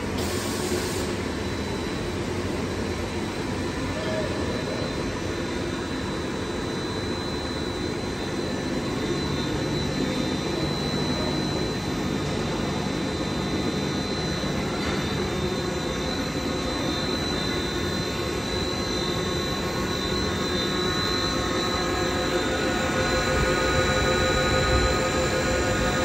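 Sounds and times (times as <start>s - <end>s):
high whine: 0.0s - 26.0s
roll ironer machine whirring: 16.1s - 26.0s.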